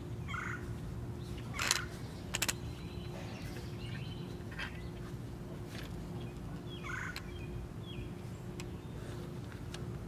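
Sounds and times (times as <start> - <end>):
steady low hum: 0.0 - 10.0
bird chirping: 0.2 - 5.1, 6.1 - 9.2.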